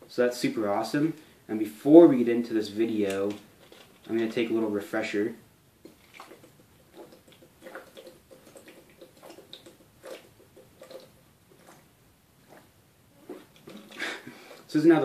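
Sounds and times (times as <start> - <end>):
person gulping water: 5.8 - 14.7.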